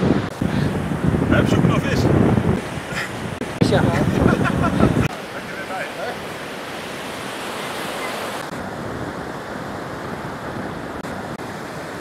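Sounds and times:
wind on microphone: 0.0 - 5.1
surf washing onto beach: 0.0 - 12.0.

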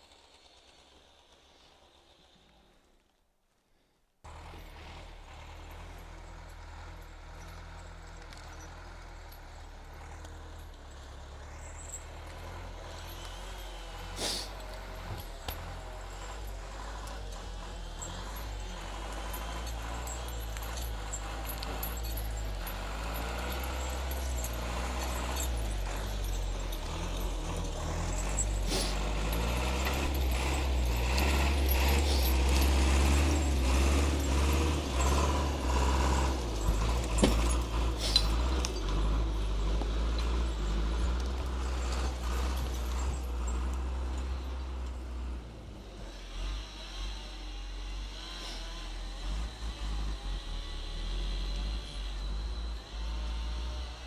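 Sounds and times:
harvester head processing trunk: 4.3 - 46.5
diesel engine running under load: 4.3 - 54.0
sharp metal clanks: 10.6 - 44.4.

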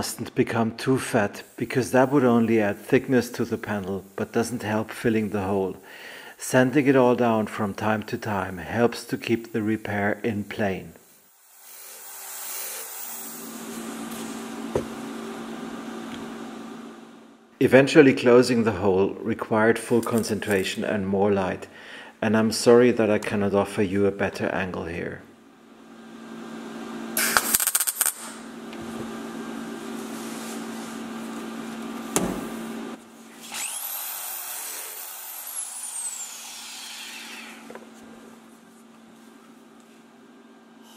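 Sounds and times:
steady low hum: 0.0 - 17.9, 28.1 - 33.4
welder crackling: 1.3 - 16.4, 27.1 - 30.2
power tool whine: 11.1 - 17.3, 25.9 - 38.1
power sander grinding metal: 11.4 - 15.0, 33.4 - 37.7
brief knock: 14.7 - 15.0.

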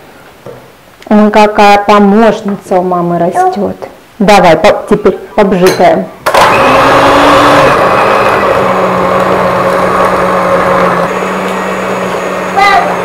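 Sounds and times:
stand mixer motor whining: 6.3 - 13.0.

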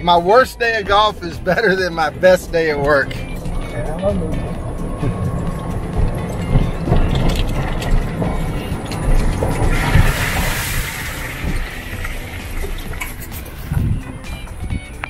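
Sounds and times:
golf cart rumbling: 0.0 - 15.0
cart body rattling: 0.8 - 15.0
tyres hissing on wet pavement: 7.8 - 13.8.

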